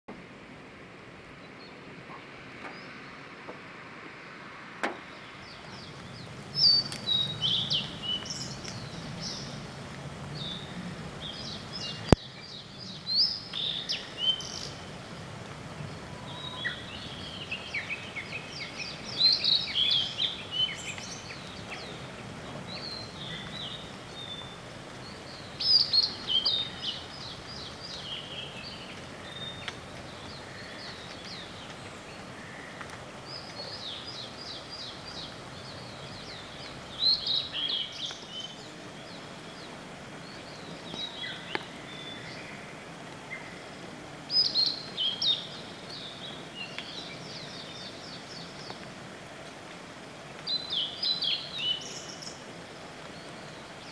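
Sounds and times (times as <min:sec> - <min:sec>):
background hiss: 0:00.1 - 0:53.9
bird singing whistled notes: 0:06.6 - 0:09.5.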